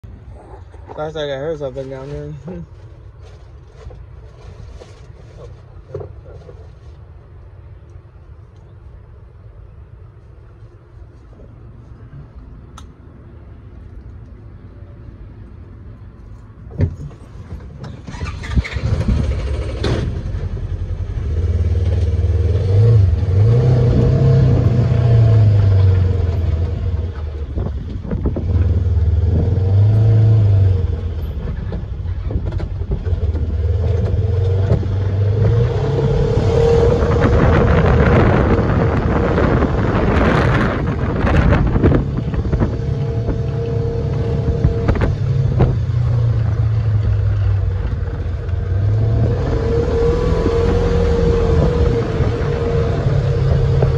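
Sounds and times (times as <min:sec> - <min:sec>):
rushing driving noise: 0:00.0 - 0:53.9
vehicle engine running: 0:18.1 - 0:53.9.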